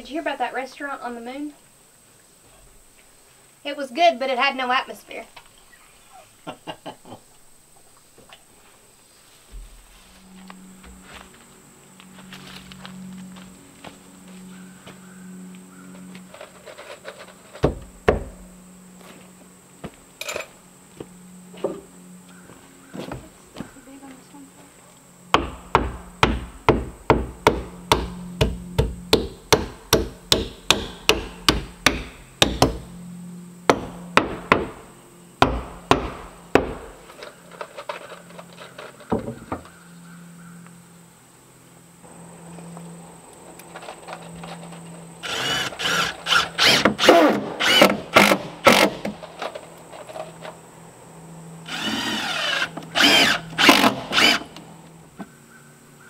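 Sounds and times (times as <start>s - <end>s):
hammer driving nails into wood: 25.4s - 32.8s
cordless drill driving screws: 45.2s - 49.1s, 51.7s - 54.6s.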